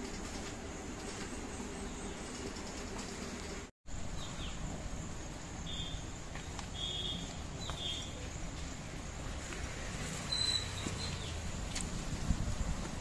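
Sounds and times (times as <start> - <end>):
high bird chirps: 6.7 - 8.3, 10.2 - 11.4.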